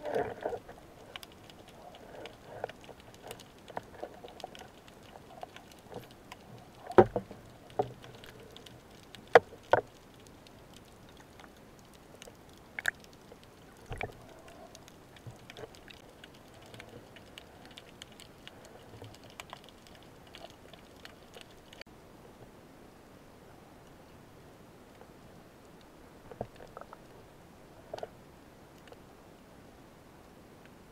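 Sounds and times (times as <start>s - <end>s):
faint crackle of clicks: 0.0s - 22.5s, 24.9s - 29.1s, 30.6s - 30.8s.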